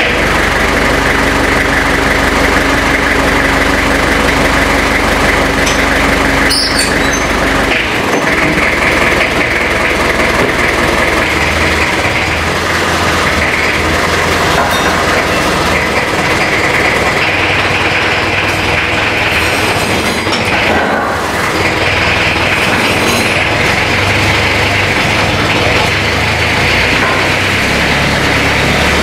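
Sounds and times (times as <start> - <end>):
forklift diesel engine running: 0.0 - 29.0.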